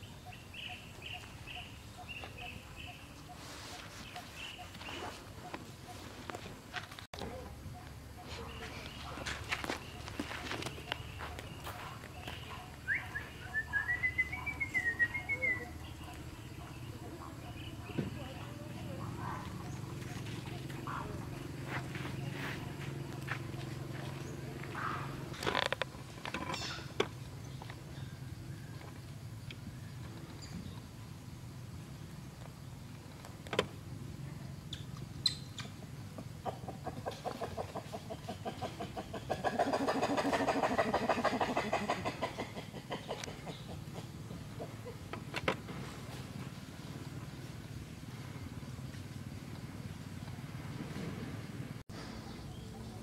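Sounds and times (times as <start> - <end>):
bird calling and chirping: 0.0 - 6.5, 7.2 - 25.4, 34.6 - 45.1
sharp chirps and clicks: 34.7 - 35.8
animal's rapid pitched calls: 36.5 - 43.9.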